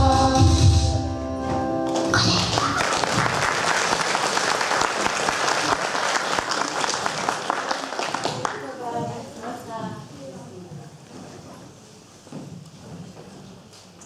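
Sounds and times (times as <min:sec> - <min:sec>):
audience applauding: 0:01.9 - 0:08.8.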